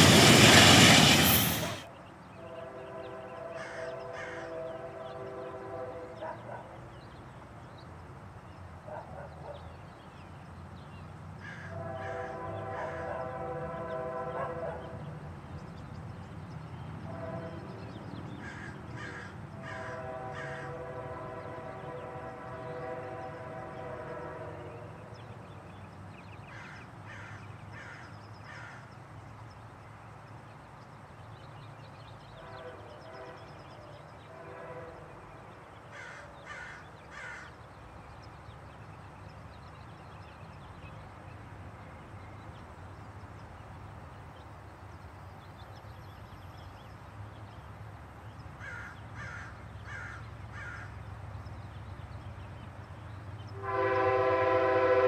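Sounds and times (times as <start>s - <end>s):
train horn chord: 1.4s - 6.5s, 11.6s - 15.4s, 17.0s - 18.3s, 19.6s - 25.4s, 32.2s - 35.6s, 53.5s - 55.0s
crows cawing: 3.6s - 4.6s, 11.4s - 12.2s, 18.4s - 20.8s, 26.5s - 28.9s, 35.9s - 37.6s, 48.6s - 51.0s.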